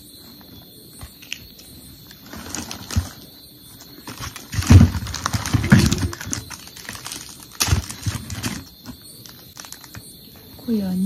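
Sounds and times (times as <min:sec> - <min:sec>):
plastic strips crinkling: 0:02.1 - 0:03.2, 0:04.0 - 0:10.0.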